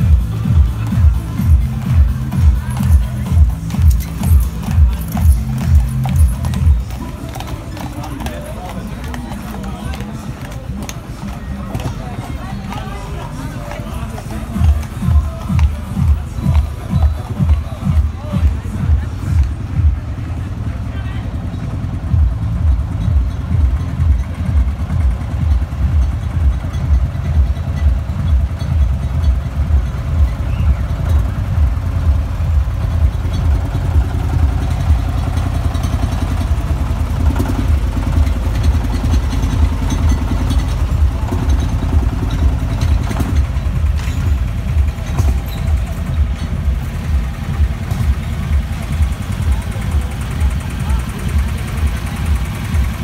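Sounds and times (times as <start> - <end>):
tractor engine chugging: 0.0 - 53.0.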